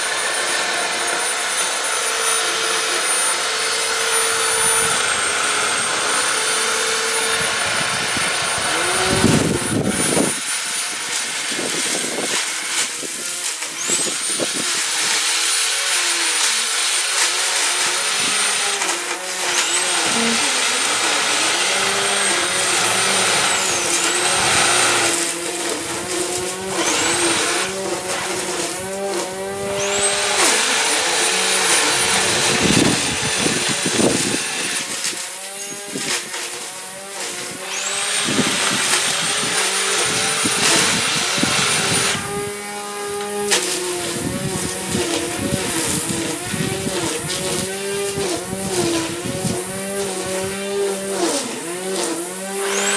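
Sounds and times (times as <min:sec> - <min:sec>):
electric trimmer motor whine: 0:00.0 - 0:52.9.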